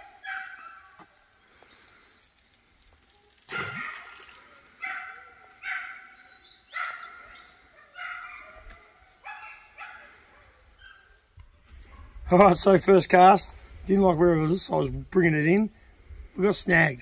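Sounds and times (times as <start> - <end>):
dog barking: 0.0 - 1.0, 3.5 - 4.2, 4.8 - 11.2, 11.9 - 12.2.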